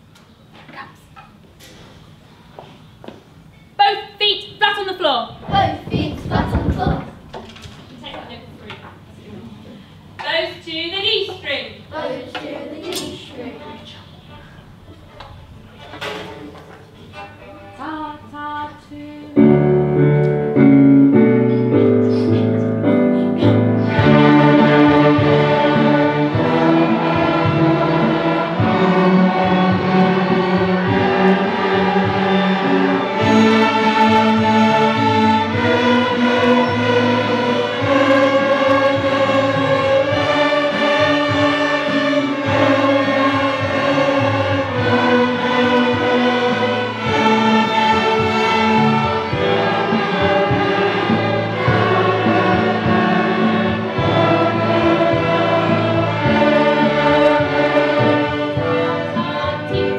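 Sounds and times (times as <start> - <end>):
children's ensemble playing music: 19.3 - 59.9.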